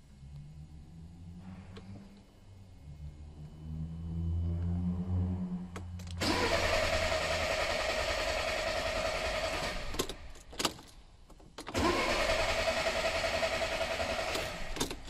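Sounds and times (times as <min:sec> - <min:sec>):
car engine cranking on starter: 0:05.8 - 0:10.8, 0:11.6 - 0:15.0.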